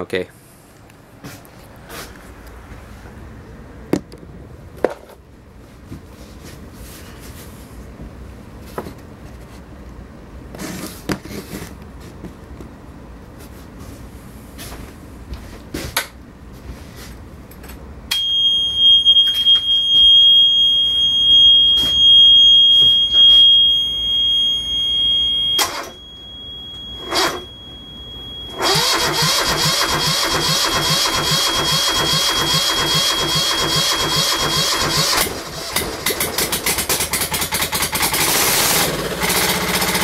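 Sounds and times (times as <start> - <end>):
high-pitched warning buzzer: 20.6 - 35.3.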